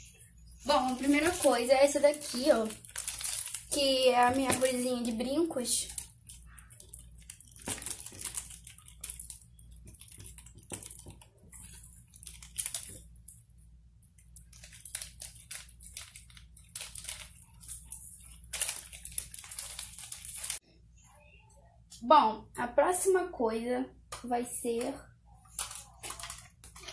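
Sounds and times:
earrings clicking and rattling: 0:00.0 - 0:20.6, 0:25.5 - 0:26.9.

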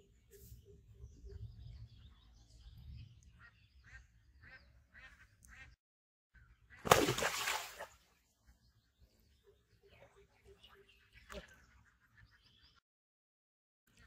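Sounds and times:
loud water splash: 0:06.8 - 0:07.9.

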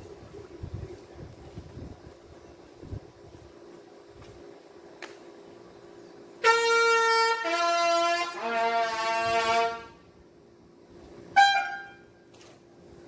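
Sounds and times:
bugle call: 0:06.4 - 0:10.0, 0:11.3 - 0:12.2.

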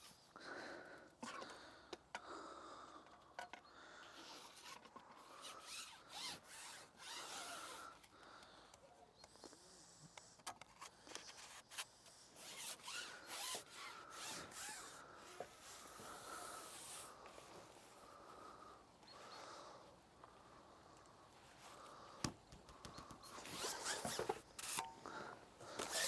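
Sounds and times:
fishing pole rubbing and clicking: 0:04.2 - 0:08.1, 0:10.1 - 0:17.1, 0:22.7 - 0:25.0, 0:25.8 - 0:26.0.

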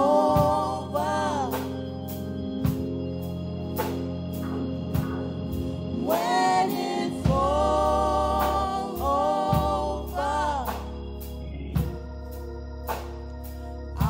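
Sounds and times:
women singing gospel: 0:00.0 - 0:02.9, 0:05.4 - 0:12.0
organ chords: 0:00.0 - 0:14.0
steady beat: 0:00.0 - 0:14.0.

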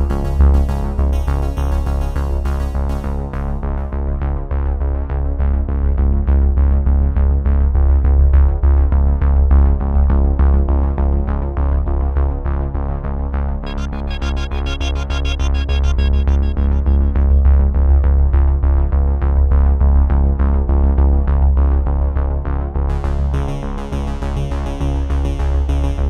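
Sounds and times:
electronic synthesizer music: 0:13.6 - 0:18.2.

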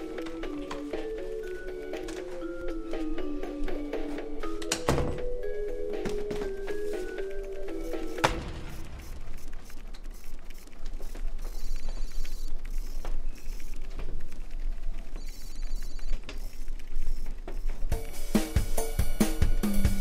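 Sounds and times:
office background noise: 0:00.0 - 0:18.0
music with drums: 0:17.9 - 0:20.0.

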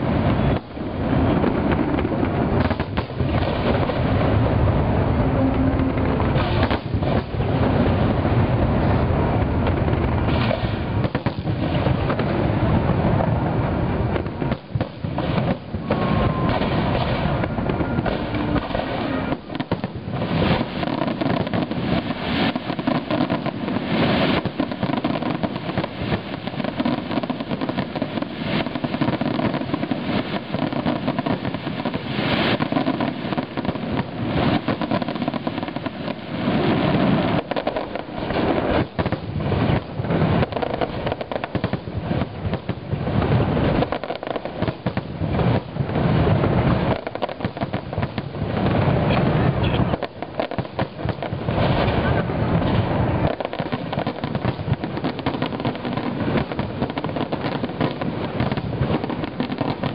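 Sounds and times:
fireworks bangs and crackles: 0:00.0 - 0:59.9.

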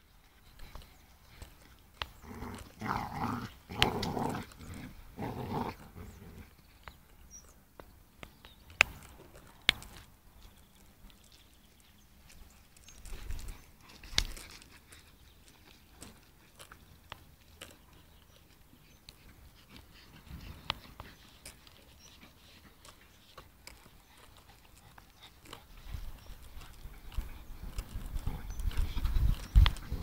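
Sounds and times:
dogs play-growling: 0:01.4 - 0:06.6.

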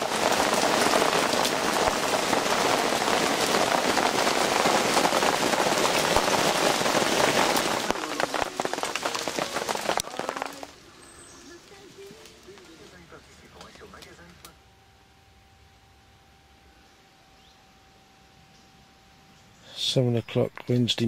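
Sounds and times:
heavy rain splashing into puddles: 0:00.0 - 0:10.8.

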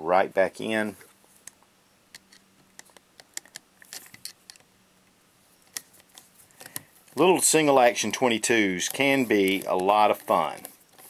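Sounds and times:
small metal clicks: 0:01.4 - 0:04.7.

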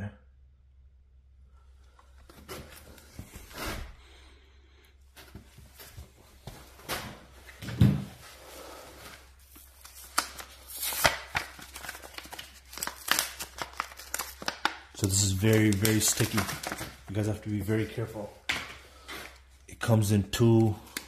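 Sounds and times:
plastic packaging crinkling: 0:09.4 - 0:18.0.

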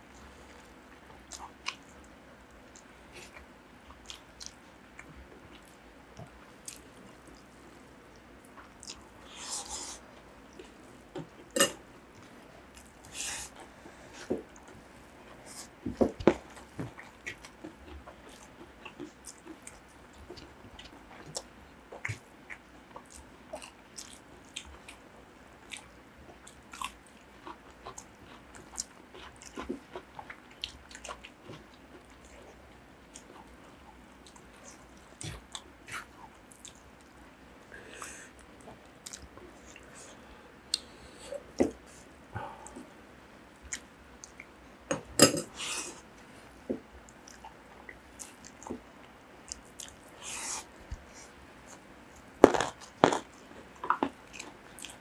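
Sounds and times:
wet chewing and mouth clicks: 0:16.3 - 0:25.0, 0:47.0 - 0:55.0.

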